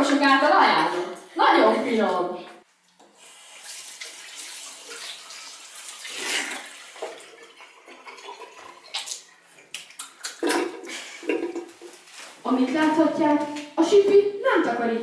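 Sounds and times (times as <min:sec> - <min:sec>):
water running from tap into sink: 0:03.2 - 0:09.2.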